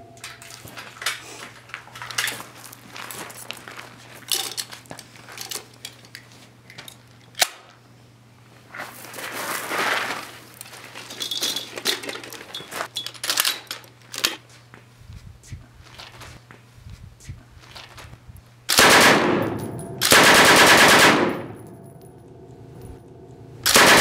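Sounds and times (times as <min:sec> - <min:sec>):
footsteps on gravel: 0:00.5 - 0:05.3, 0:08.8 - 0:11.1
ammunition belt rattling: 0:01.8 - 0:02.6, 0:04.2 - 0:07.4, 0:10.6 - 0:14.4
sharp metallic clicks: 0:18.7 - 0:24.0.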